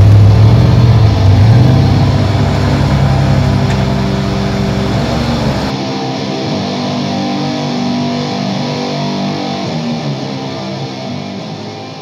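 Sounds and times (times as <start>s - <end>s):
truck engine running: 0.0s - 5.7s.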